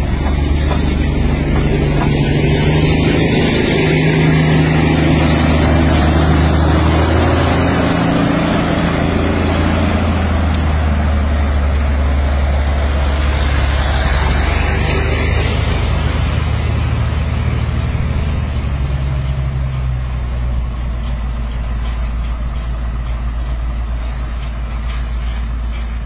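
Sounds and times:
locomotive diesel engine drone: 0:00.0 - 0:26.0.

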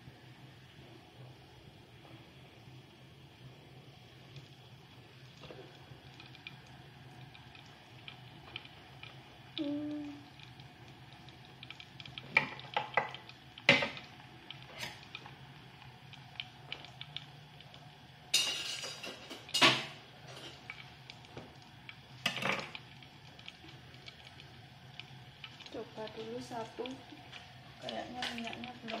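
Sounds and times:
low steady hum: 0:00.0 - 0:29.0
pans and utensils clinking: 0:18.3 - 0:20.7.

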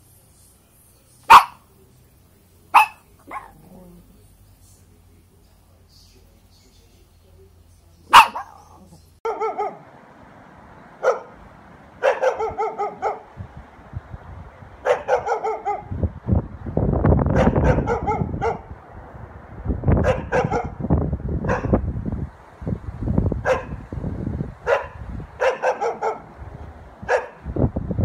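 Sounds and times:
dogs barking: 0:01.2 - 0:01.7, 0:02.7 - 0:04.0, 0:08.1 - 0:09.9, 0:11.0 - 0:11.4, 0:12.0 - 0:13.4, 0:14.8 - 0:16.0, 0:17.3 - 0:18.7, 0:20.0 - 0:20.8, 0:21.4 - 0:21.8, 0:23.4 - 0:23.8, 0:24.6 - 0:26.4, 0:27.0 - 0:27.5
low rumbling noise: 0:09.8 - 0:28.0.

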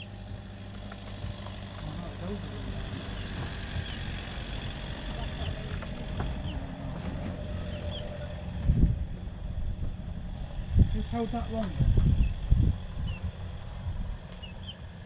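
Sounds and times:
small engine running: 0:00.0 - 0:15.0.

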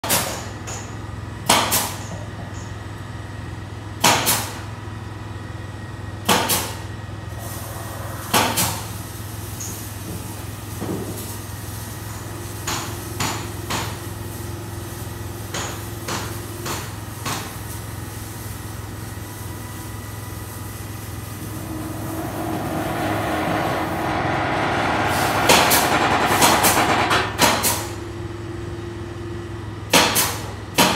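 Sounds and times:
low machine hum: 0:19.3 - 0:27.4
loud machine noise: 0:20.0 - 0:28.7.

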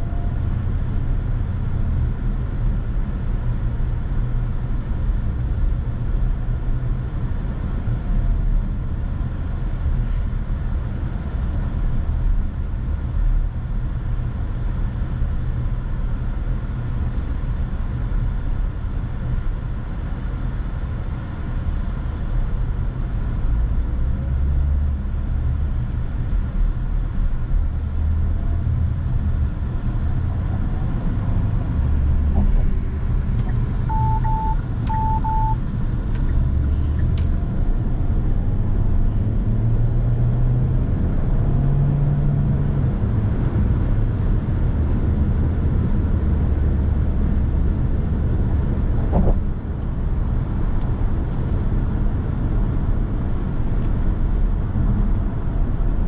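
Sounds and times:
car driving with road noise: 0:00.0 - 0:56.0
short electronic beeps: 0:33.5 - 0:35.6.

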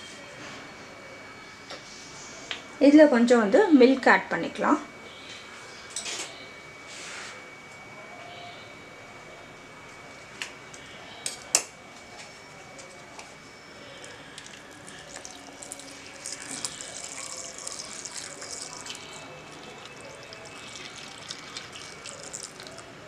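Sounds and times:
milk pouring into blender jar: 0:14.4 - 0:22.8.

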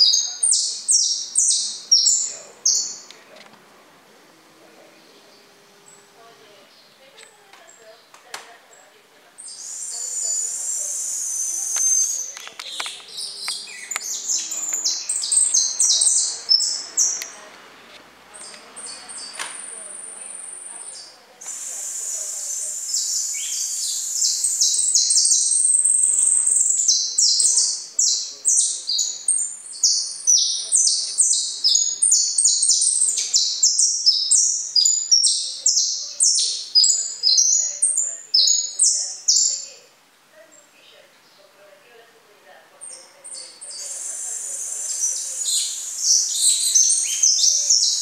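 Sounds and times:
finch chirping and trilling: 0:00.0 - 0:03.1, 0:09.4 - 0:17.4, 0:18.4 - 0:39.8, 0:42.9 - 0:48.0.

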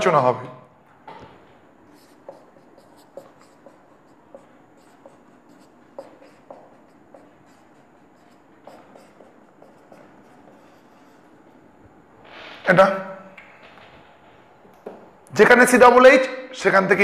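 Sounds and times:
marker writing on whiteboard: 0:01.1 - 0:12.7.

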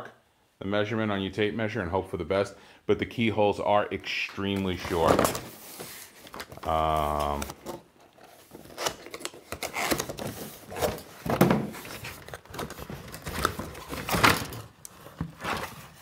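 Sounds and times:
cardboard scraping and rustling: 0:04.6 - 0:16.0
cardboard box thumps: 0:11.2 - 0:11.8.

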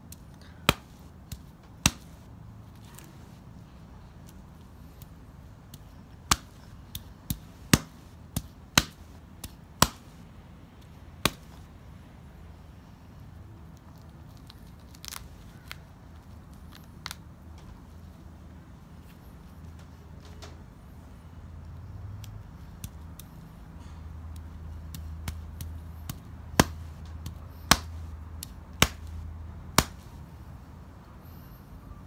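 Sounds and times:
husk fibres tearing: 0:13.8 - 0:17.2.

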